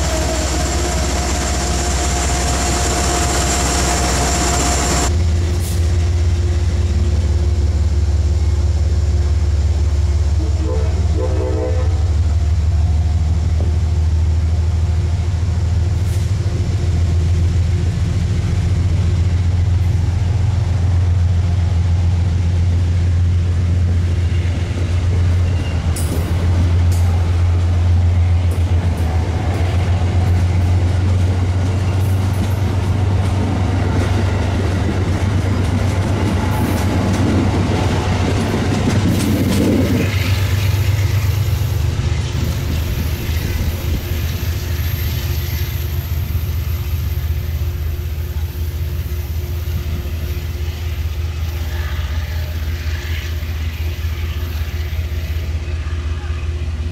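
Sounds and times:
locomotive low rumble: 0.0s - 56.9s
train wheels clicking over rail joints: 24.7s - 46.7s.

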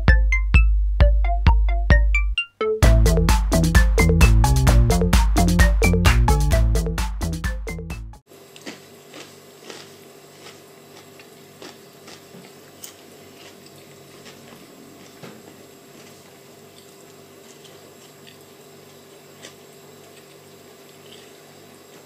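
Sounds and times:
person chewing: 8.5s - 22.0s.

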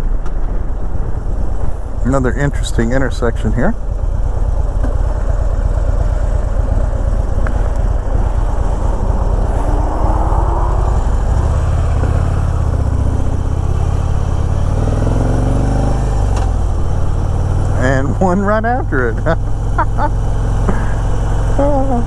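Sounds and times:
motorcycle engine running: 0.0s - 22.0s
road noise: 0.0s - 22.0s
wind noise: 7.3s - 13.8s.

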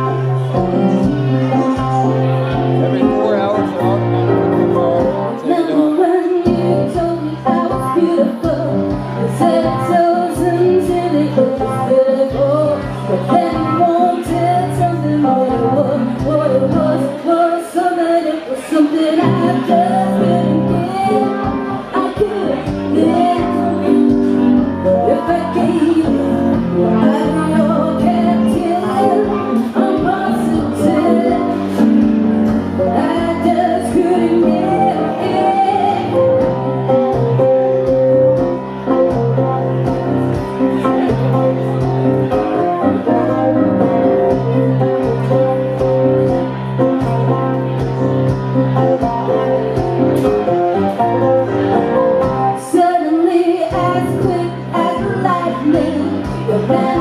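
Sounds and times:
stage piano: 0.0s - 57.0s
woman singing: 5.4s - 37.2s, 52.5s - 57.0s.

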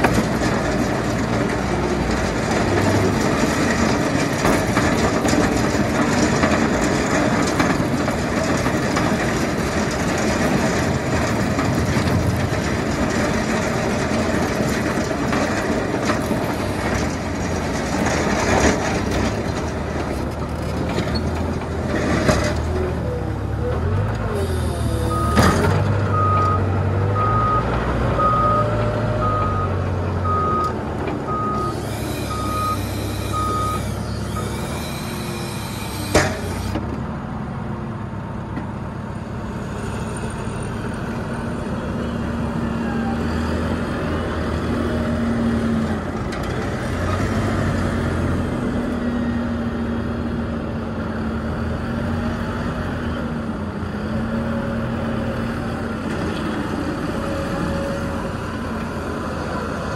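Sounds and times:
reversing alarm beeping: 24.4s - 35.9s.

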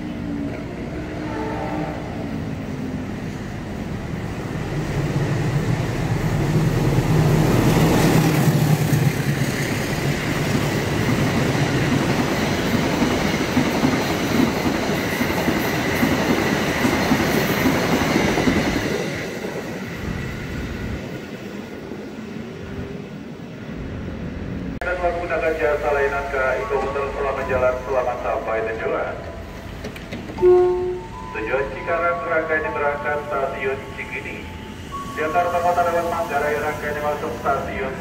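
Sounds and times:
train engine hum: 0.0s - 38.0s
train wheels clattering on rails: 7.5s - 20.3s, 29.6s - 30.4s.

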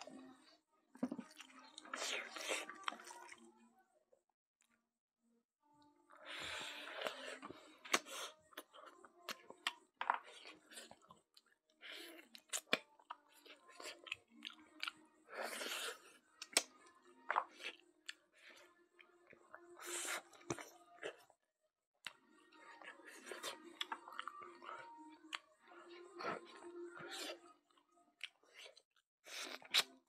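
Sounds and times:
wet chewing and lip-smacking: 6.5s - 18.7s, 22.8s - 25.6s, 28.2s - 30.0s.

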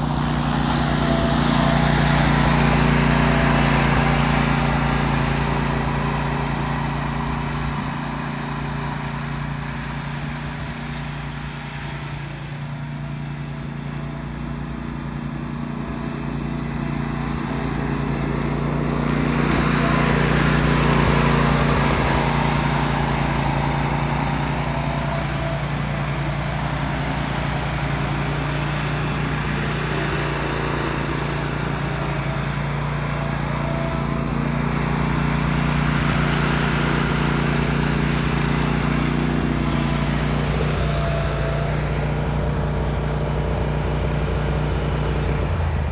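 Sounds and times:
mower blade and airflow hiss: 0.0s - 43.4s
ride-on mower engine hum: 0.0s - 45.9s.

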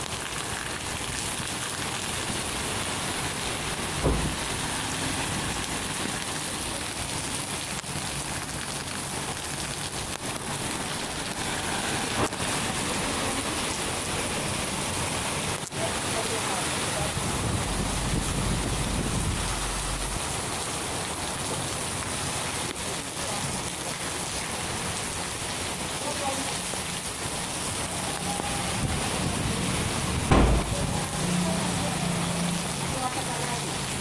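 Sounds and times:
torrential rain hissing: 0.0s - 34.0s
low thump: 4.0s - 4.6s, 30.3s - 31.1s.

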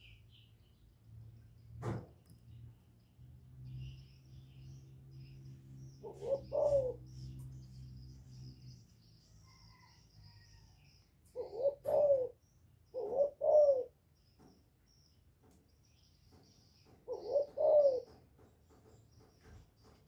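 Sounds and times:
dove cooing: 6.0s - 7.2s, 11.3s - 14.0s, 17.1s - 18.2s.

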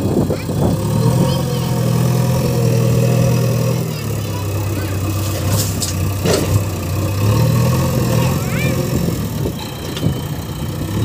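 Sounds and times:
diesel engine running: 0.0s - 11.0s
bucket tipping load: 3.9s - 6.8s.

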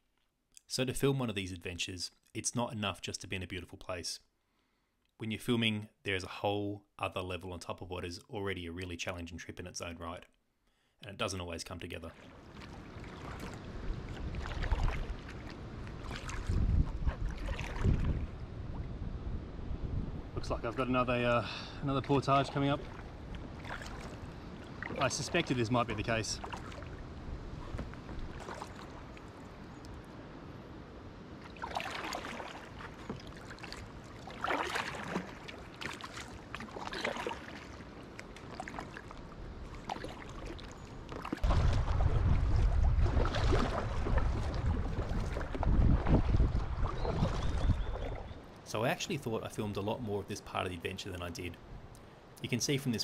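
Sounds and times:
kayak paddle splashing: 12.1s - 19.0s, 21.7s - 29.8s, 31.3s - 48.5s
wind rumbling on microphone: 12.4s - 21.2s, 22.0s - 34.1s, 41.4s - 48.5s.

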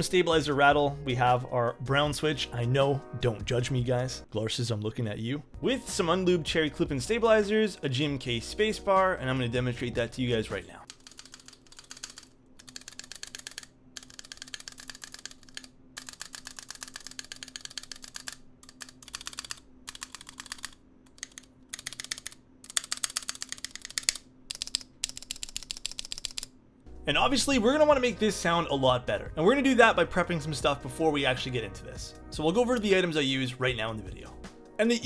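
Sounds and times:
rattling keyboard keystrokes: 10.9s - 26.5s.

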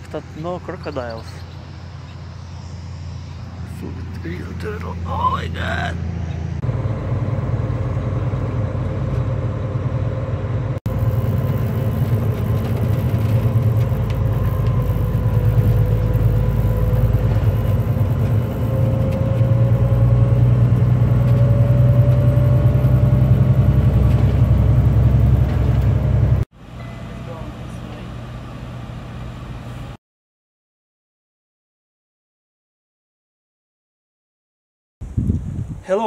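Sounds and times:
truck engine rumble from cab: 0.0s - 30.0s
faint rising tone: 6.1s - 30.0s.

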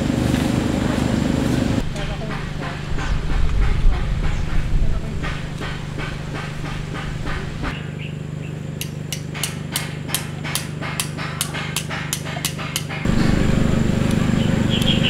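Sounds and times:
steady low hum: 0.0s - 15.0s
hammering: 1.8s - 7.8s, 8.8s - 13.5s.

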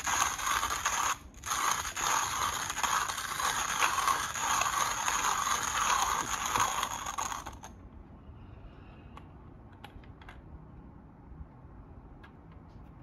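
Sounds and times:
hand coffee grinder crunching beans: 0.0s - 7.7s.

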